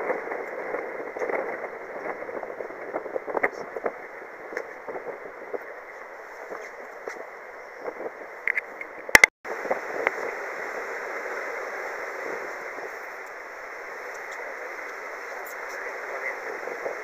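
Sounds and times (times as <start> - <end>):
wind: 0.0 - 17.0
sea water rushing: 9.5 - 17.0.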